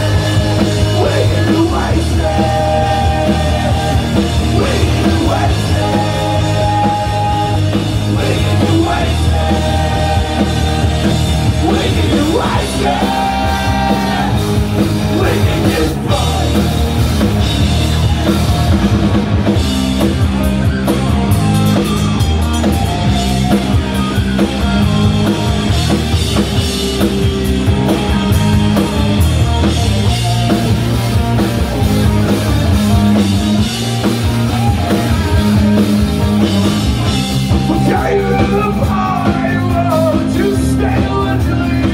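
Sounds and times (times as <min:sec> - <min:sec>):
drums: 0:00.0 - 0:41.9
electric guitar: 0:00.0 - 0:41.9
person singing: 0:00.1 - 0:16.9.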